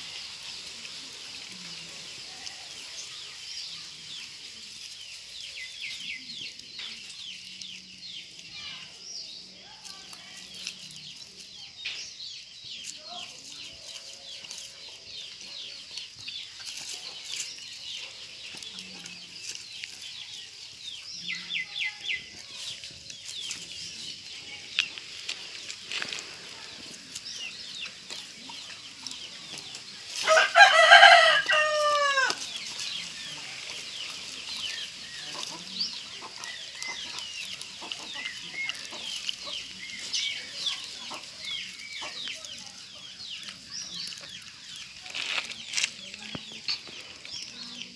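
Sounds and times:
birds chirping: 0.0s - 47.9s
rooster crowing: 30.2s - 32.4s.

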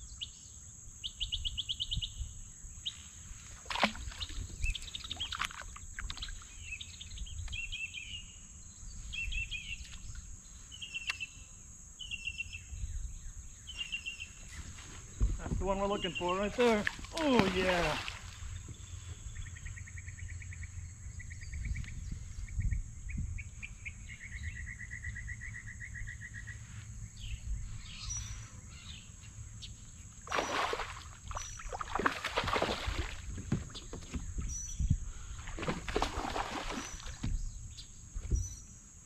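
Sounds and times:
fish thrashing and splashing: 3.6s - 6.3s, 16.9s - 18.5s, 30.3s - 34.2s, 35.4s - 37.3s.

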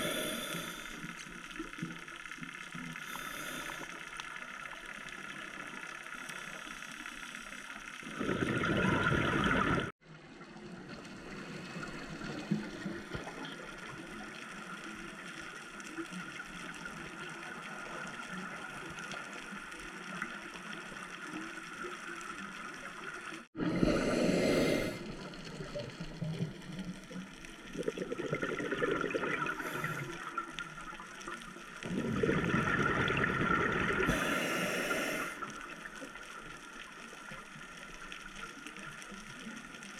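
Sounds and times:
underwater hiss: 0.0s - 1.8s, 3.0s - 4.5s, 23.6s - 25.6s, 28.5s - 30.9s, 32.8s - 36.3s
diver exhaling bubbles: 8.0s - 9.9s, 27.7s - 30.4s, 31.8s - 35.4s.

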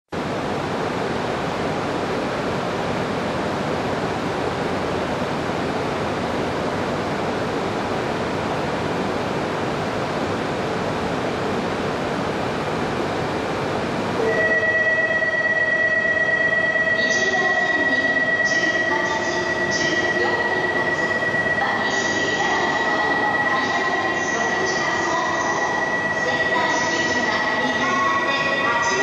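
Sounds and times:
high steady tone: 14.2s - 29.0s.

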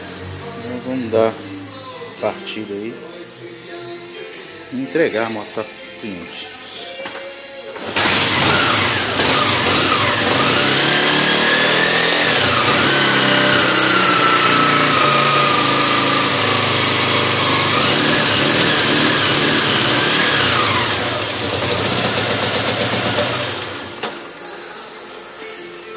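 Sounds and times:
motorcycle engine revving and idling: 7.8s - 24.4s.

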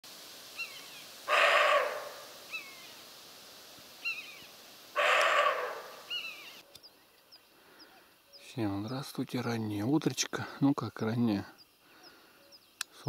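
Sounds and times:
small bird chirping: 0.5s - 3.1s, 4.0s - 10.4s, 11.1s - 13.0s
deer barking: 1.3s - 2.6s, 5.0s - 6.3s.

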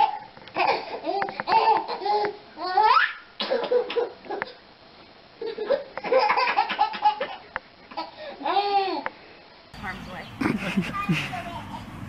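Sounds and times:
baby laughing: 0.0s - 4.6s, 5.4s - 9.0s, 10.4s - 11.6s.

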